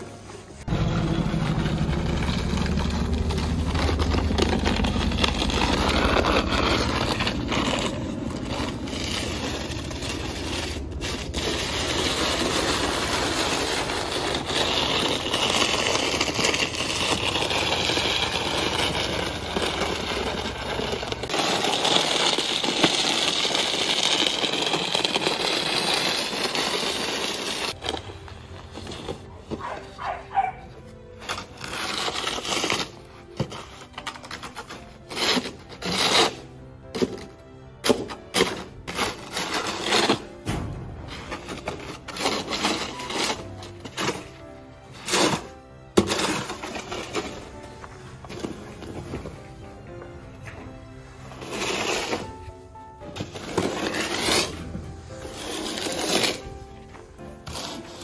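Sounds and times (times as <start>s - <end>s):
snow shovel scraping paving: 0.0s - 58.0s
low rumble: 0.6s - 21.3s, 40.4s - 42.9s.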